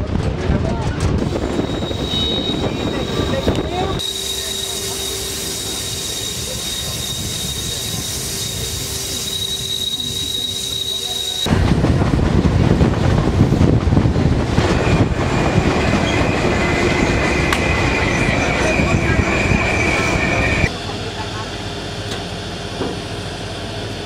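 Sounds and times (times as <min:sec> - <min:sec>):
rumbling rail noise: 0:00.0 - 0:24.0
train wheels squealing: 0:01.3 - 0:11.5, 0:14.7 - 0:20.7.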